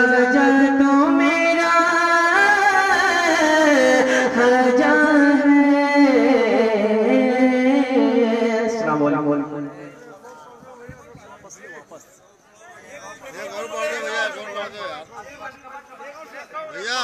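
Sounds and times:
man singing through microphone: 0.0s - 9.9s.

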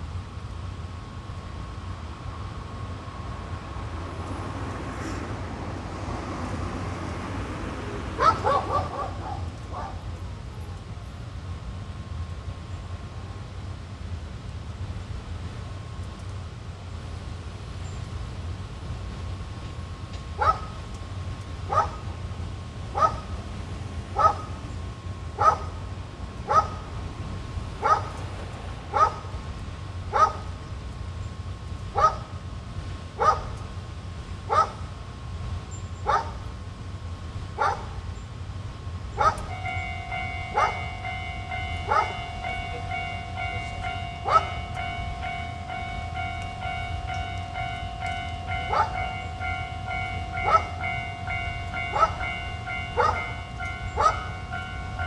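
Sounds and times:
dog barking: 8.2s - 10.0s, 20.4s - 20.7s, 21.7s - 22.0s, 23.0s - 23.2s, 24.2s - 24.5s, 25.4s - 25.7s, 26.5s - 26.8s, 27.8s - 28.1s, 28.9s - 29.2s, 30.1s - 30.4s, 32.0s - 32.3s, 33.2s - 33.5s, 34.5s - 34.8s, 36.1s - 36.4s, 37.6s - 37.9s, 39.2s - 39.5s, 40.5s - 40.8s, 41.8s - 42.2s, 44.2s - 44.6s, 48.7s - 49.0s, 50.4s - 50.8s, 51.9s - 52.2s, 53.0s - 53.3s, 54.0s - 54.3s.

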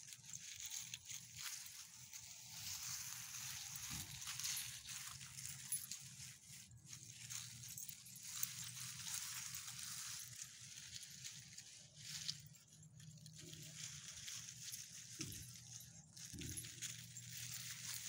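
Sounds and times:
dogs walking through dry leaves: 0.0s - 18.0s.

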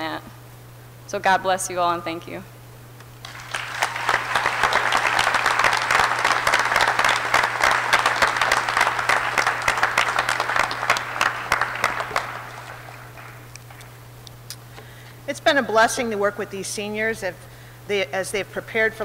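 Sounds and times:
faint low hum: 0.0s - 19.0s
audience applauding: 3.2s - 14.1s.

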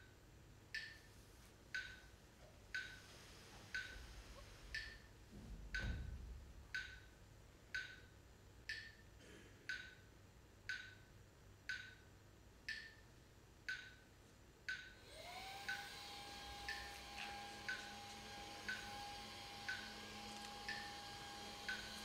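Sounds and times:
sharp dry ticking: 18.6s - 22.0s.

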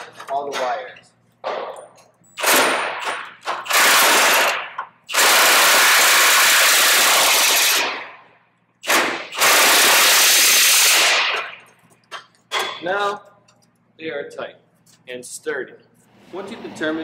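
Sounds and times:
impact wrench hammering bolts: 12.1s - 12.9s.

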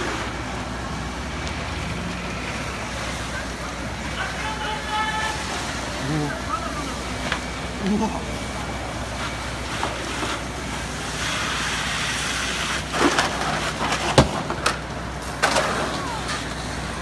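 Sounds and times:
hiss: 11.0s - 12.9s
sharp cracks and knocks: 12.9s - 16.6s.

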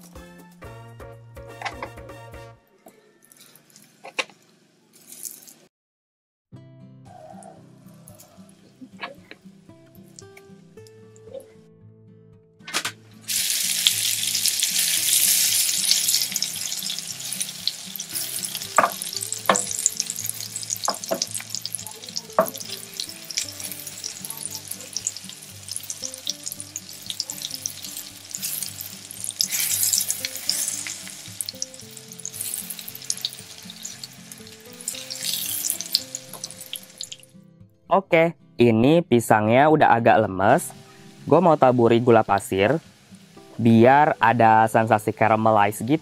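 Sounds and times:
plantain sizzling in a pan: 13.2s - 37.3s, 40.8s - 46.0s.

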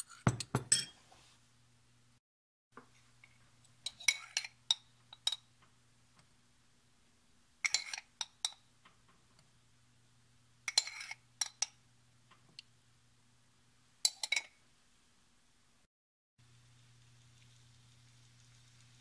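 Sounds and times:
metal spoon clinking: 0.0s - 1.0s, 3.8s - 5.5s, 7.6s - 8.6s, 10.7s - 11.8s, 14.0s - 14.5s
faint steady hum: 2.8s - 15.8s, 16.4s - 19.0s.

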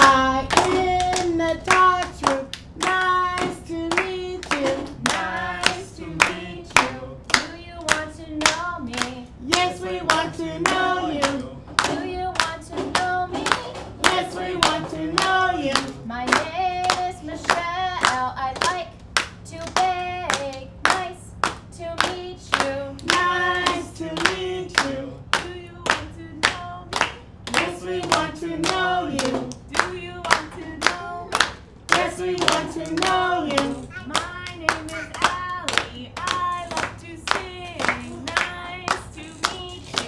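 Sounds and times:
voices singing children's song: 0.0s - 40.0s
hands clapping: 18.6s - 40.0s.

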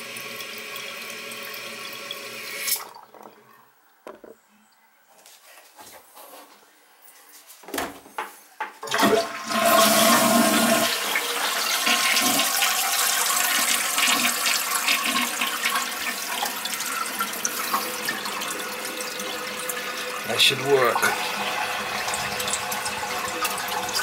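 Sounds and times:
toilet flushing rush: 0.0s - 3.5s, 8.9s - 24.0s.

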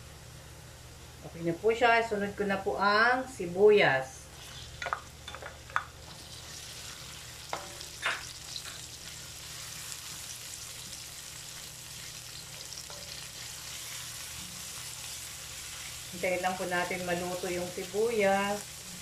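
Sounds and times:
onion sizzling in hot oil: 4.3s - 19.0s.

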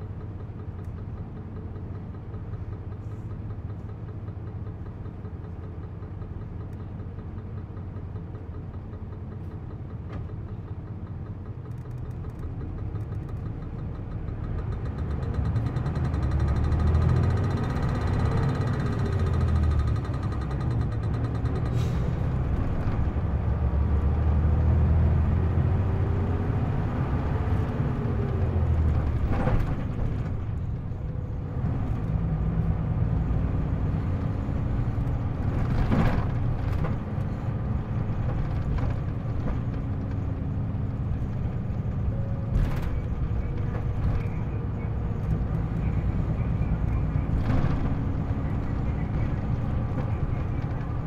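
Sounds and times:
bus diesel engine revving: 12.8s - 51.0s.

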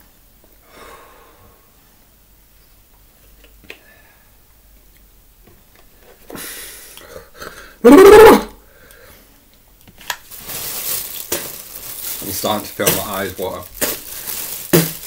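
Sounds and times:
loud voiced outburst: 7.8s - 8.6s.

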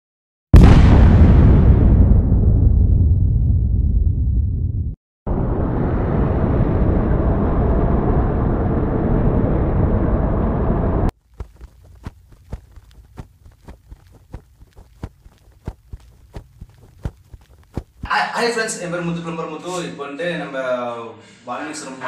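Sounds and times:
loud rumbling eruption: 0.6s - 11.1s.

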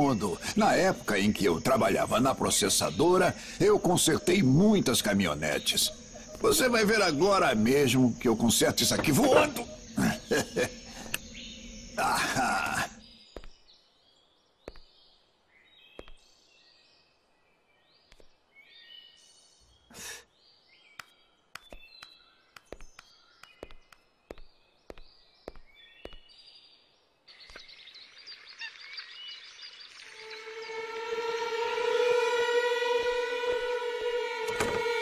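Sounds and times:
birds chirping: 0.0s - 35.0s
sharp clicks and taps: 21.0s - 26.2s.

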